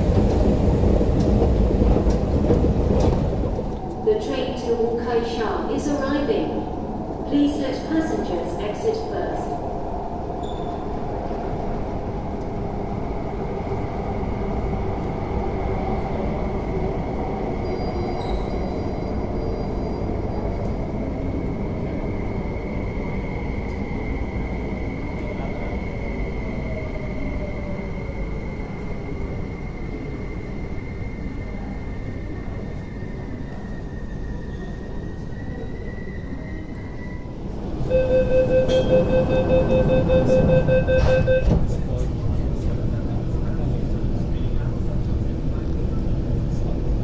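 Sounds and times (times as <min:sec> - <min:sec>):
train wheels rumbling: 0:00.0 - 0:10.4
train braking whine: 0:28.2 - 0:41.8.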